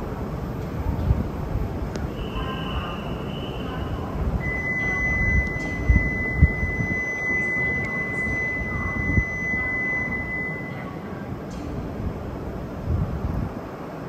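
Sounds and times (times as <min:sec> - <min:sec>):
train rumbling at platform: 0:00.0 - 0:14.0
high electronic warning tone: 0:02.2 - 0:11.3.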